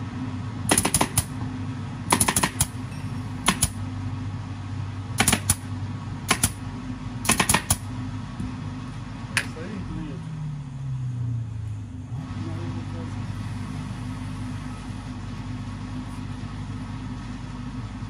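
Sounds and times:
steady low hum: 0:00.0 - 0:18.0
pneumatic staple gun firing: 0:00.7 - 0:01.3, 0:02.1 - 0:02.8, 0:03.4 - 0:03.8, 0:05.2 - 0:05.6, 0:06.3 - 0:06.6, 0:07.2 - 0:07.9.

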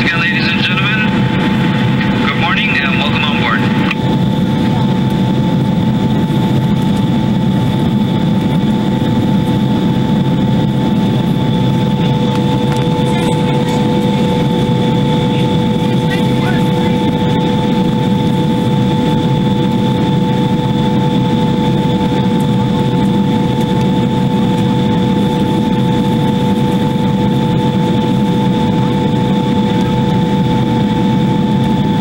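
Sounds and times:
jet engine and airflow rumble: 0:00.0 - 0:32.0
high-pitched whining tones: 0:10.4 - 0:21.8.

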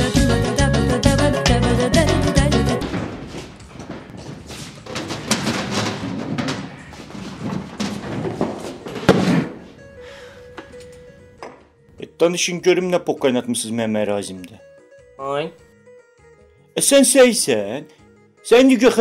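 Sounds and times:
bumps and thuds: 0:02.3 - 0:09.8
shuffling: 0:02.4 - 0:11.4.

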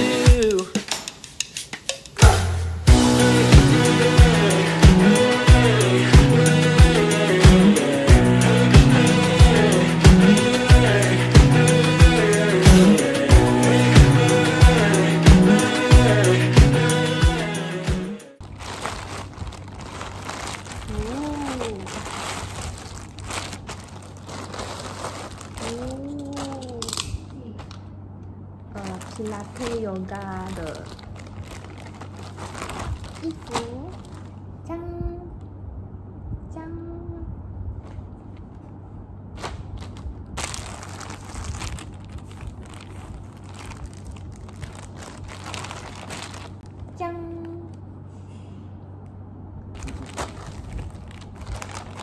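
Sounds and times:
plastic bags crinkling: 0:18.4 - 0:27.8, 0:28.7 - 0:34.5, 0:39.4 - 0:46.8, 0:49.8 - 0:52.0.

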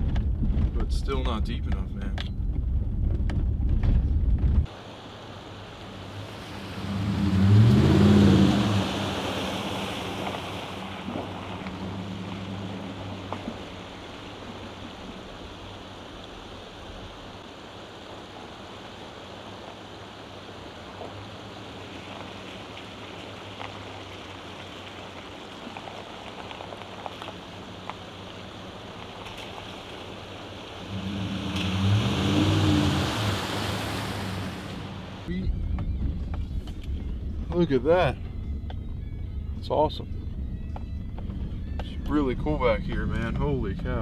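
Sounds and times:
creek water running: 0:04.6 - 0:35.4
tyres splashing water: 0:04.6 - 0:35.4
pickup truck engine passing: 0:04.9 - 0:17.4, 0:19.2 - 0:35.3.

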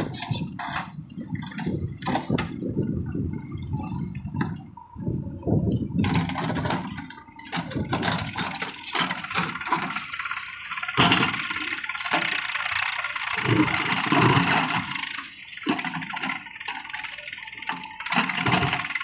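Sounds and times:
knocks and clatter: 0:00.0 - 0:04.8, 0:05.6 - 0:12.6, 0:13.4 - 0:15.0, 0:17.7 - 0:19.0
diesel engine running: 0:00.0 - 0:19.0.

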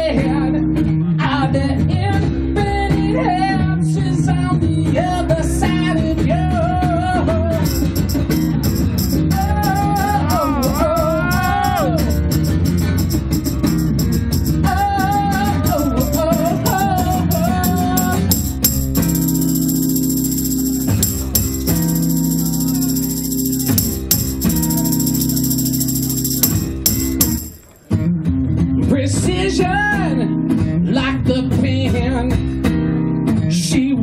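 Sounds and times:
person singing: 0:09.3 - 0:12.2, 0:14.6 - 0:18.6.

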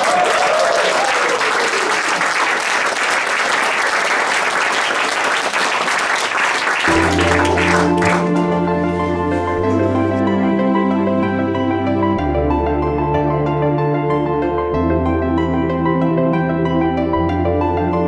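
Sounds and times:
audience applauding: 0:00.0 - 0:10.2
instrumental music with sustained notes: 0:06.9 - 0:18.0.

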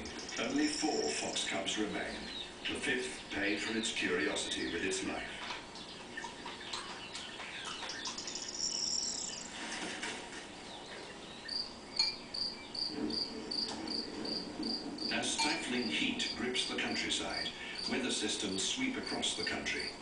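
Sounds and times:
crickets chirping: 0:08.3 - 0:09.5, 0:11.5 - 0:18.2, 0:18.9 - 0:20.0.

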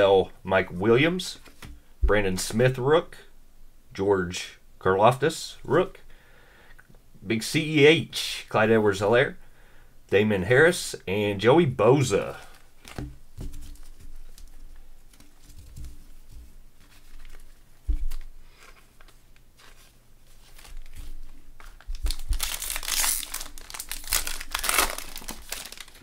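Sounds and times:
foil wrapper crinkling and tearing: 0:20.5 - 0:26.0.

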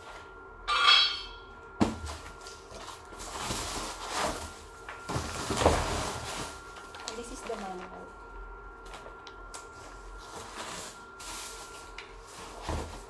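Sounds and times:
high-pitched squeak: 0:00.7 - 0:01.4.

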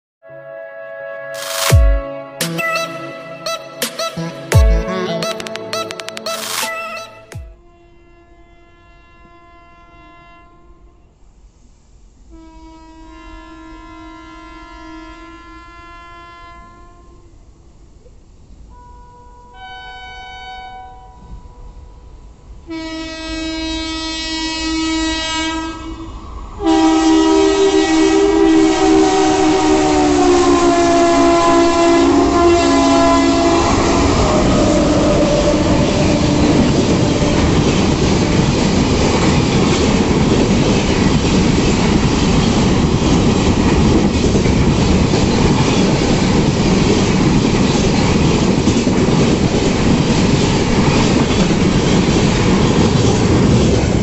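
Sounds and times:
locomotive horn: 0:00.2 - 0:05.9, 0:06.6 - 0:11.2, 0:12.3 - 0:17.4, 0:18.7 - 0:38.3
train wheel clatter: 0:35.2 - 0:54.0.

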